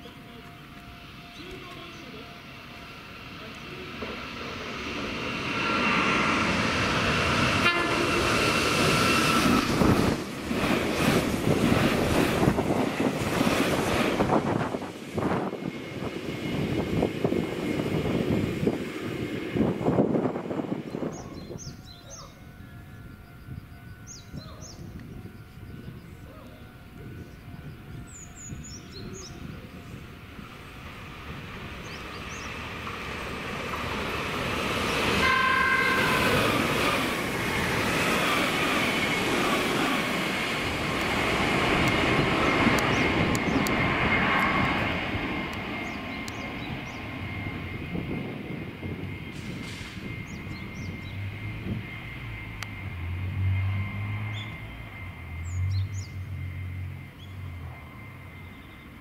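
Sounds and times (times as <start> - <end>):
rushing roar of passing train: 0.0 - 59.0
train horn blast: 7.5 - 9.0, 35.1 - 36.8.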